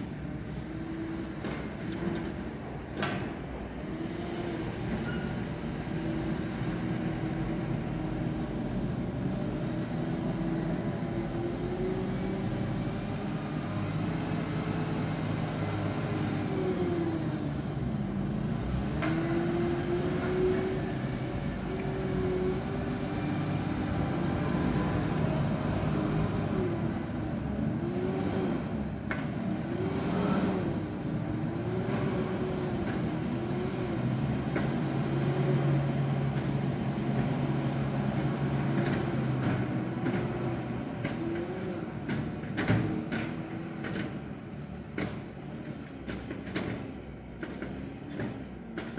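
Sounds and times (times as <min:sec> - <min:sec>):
diesel loader engine revving: 0:00.2 - 0:02.4, 0:03.8 - 0:48.7.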